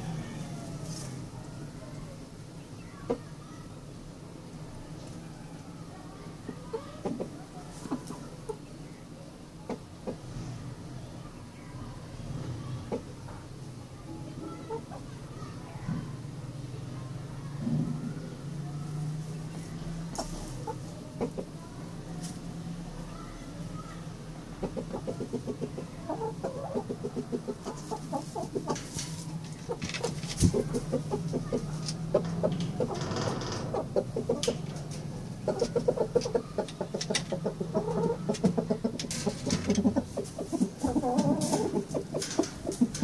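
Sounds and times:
hens clucking: 0:06.3 - 0:10.4, 0:14.3 - 0:15.2, 0:19.0 - 0:43.0.

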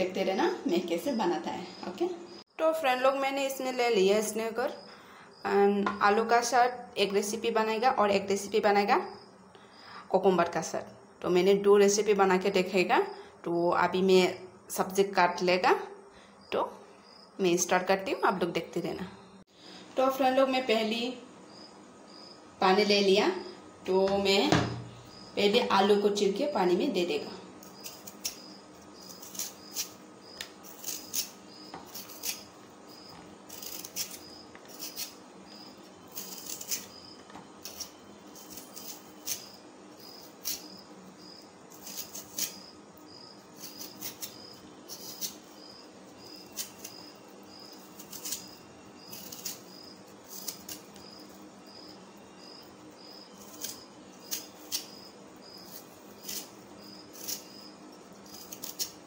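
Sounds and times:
knife scraping potato skin: 0:27.6 - 0:59.0.

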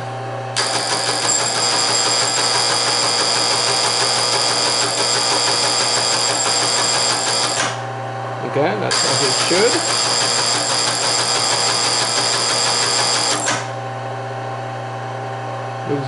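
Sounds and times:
teleprinter mechanical clatter: 0:00.6 - 0:07.7, 0:08.9 - 0:13.7
motor whine: 0:08.9 - 0:13.9.

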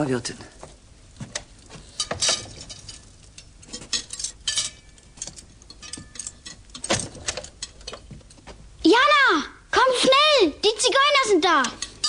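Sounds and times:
crockery clinking: 0:01.9 - 0:08.4, 0:11.6 - 0:12.0.

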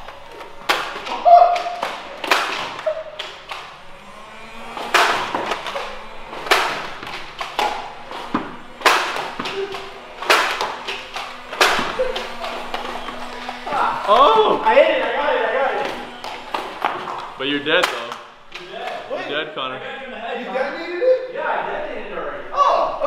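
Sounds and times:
toy blasters firing darts: 0:00.0 - 0:14.7, 0:15.8 - 0:18.5.

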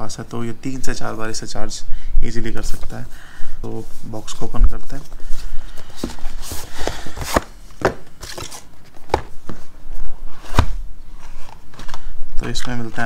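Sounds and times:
packaging sliding rustle: 0:05.0 - 0:12.9.

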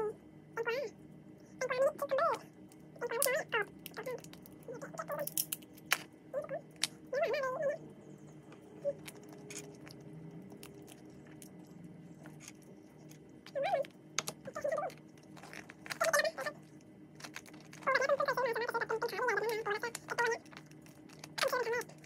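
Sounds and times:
crab shell cracking: 0:02.6 - 0:06.1, 0:08.9 - 0:18.4, 0:19.2 - 0:22.0.

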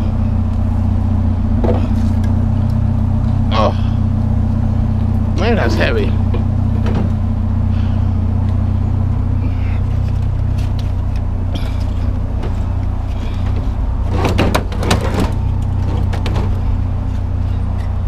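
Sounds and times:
truck engine running: 0:00.0 - 0:18.0
clatter of knocks: 0:13.3 - 0:16.6.

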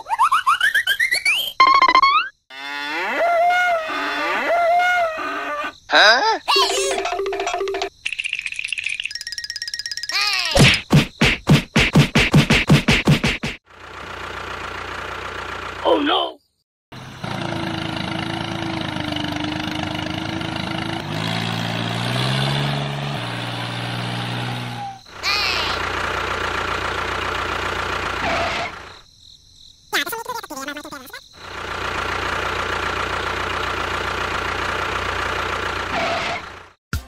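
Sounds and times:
tractor engine running: 0:13.6 - 0:16.0, 0:16.9 - 0:29.0, 0:31.4 - 0:36.8.

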